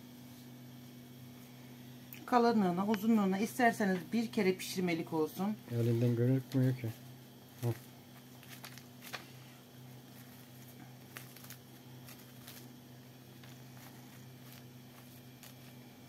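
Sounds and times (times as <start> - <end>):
steady low hum: 0.0 - 16.0
plastic film crinkling: 5.6 - 16.0
sharp crackles: 5.7 - 16.0
meat mixture squishing: 7.6 - 16.0.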